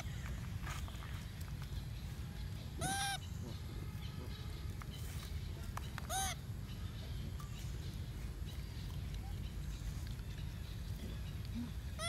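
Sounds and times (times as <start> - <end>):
steady low rumble: 0.0 - 12.0
macaque coo calls: 2.8 - 3.7, 6.1 - 6.5, 11.0 - 12.0.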